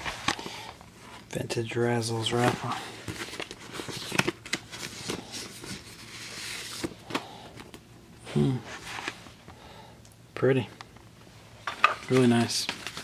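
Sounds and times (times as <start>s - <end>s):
paper crinkling: 2.3s - 7.2s, 12.0s - 13.0s
paper rustling: 11.7s - 13.0s.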